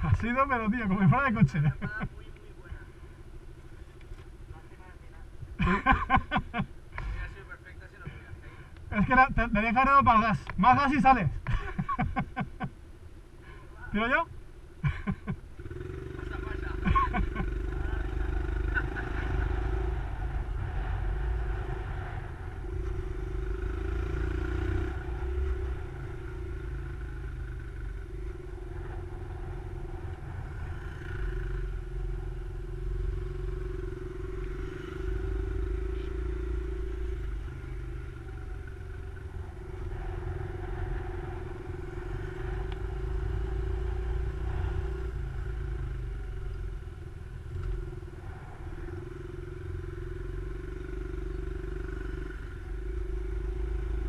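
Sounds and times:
small motorcycle engine running: 11.4 - 21.8, 22.6 - 54.0.

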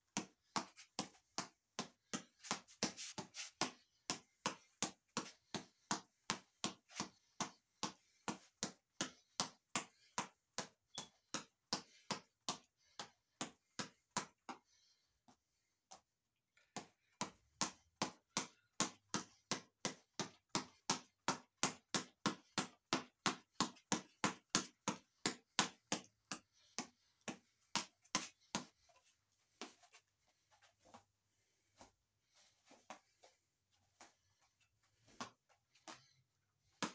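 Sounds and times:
reflex ball taps from punches: 0.1 - 14.8, 16.6 - 29.9, 35.1 - 36.9.

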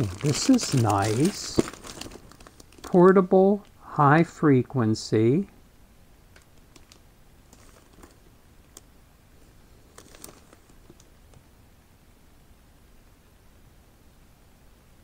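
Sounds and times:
plastic bag crinkling: 0.0 - 3.8, 6.4 - 8.9, 9.8 - 11.1.

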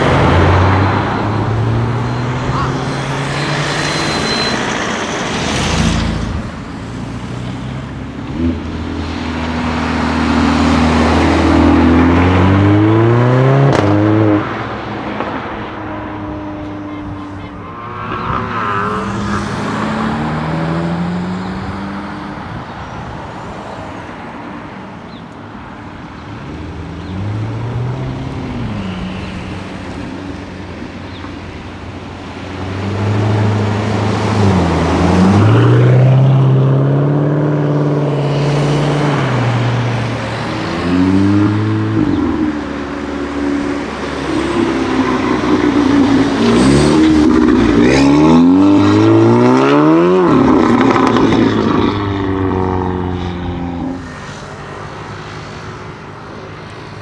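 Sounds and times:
sports cars accelerating: 7.0 - 22.7, 26.0 - 57.0.

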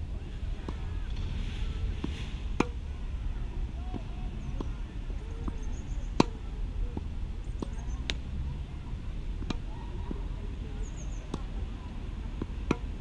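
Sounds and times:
steady low rumble: 0.0 - 13.0
racket hitting tennis ball: 2.0 - 2.8, 6.2 - 6.4, 9.4 - 9.7, 12.4 - 13.0.

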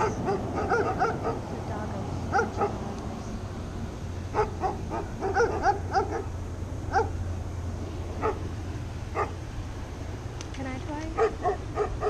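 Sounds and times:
dog barking: 0.0 - 1.5, 2.3 - 2.9, 4.3 - 6.3, 6.9 - 7.2, 8.2 - 8.5, 9.1 - 9.4, 11.2 - 12.0.

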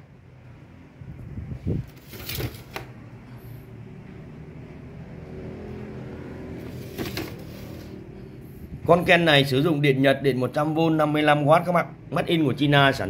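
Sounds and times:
object scraping on tiled floor: 6.6 - 8.1.

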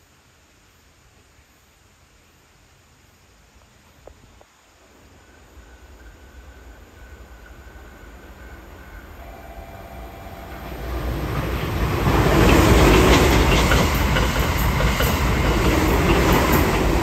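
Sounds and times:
thin steady whine: 4.8 - 17.0
train rumble: 5.2 - 17.0.

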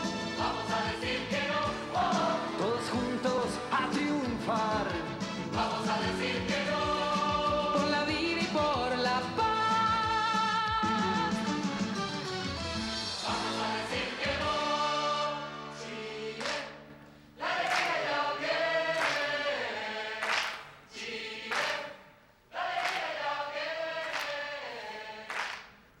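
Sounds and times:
choir singing a jingle: 0.0 - 3.9, 5.5 - 8.1, 13.1 - 16.8, 17.4 - 25.6.

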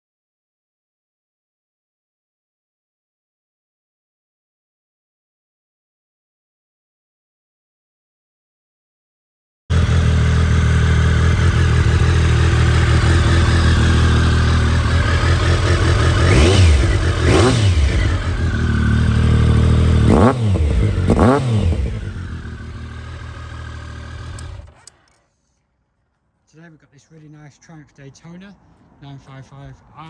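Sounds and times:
motorcycle engine idling and revving: 9.7 - 25.2.

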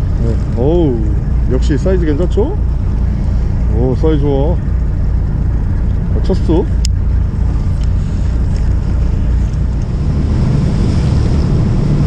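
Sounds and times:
boat engine rumbling: 0.0 - 12.0
water washing past hull: 0.0 - 12.0
wind on microphone: 4.6 - 12.0.

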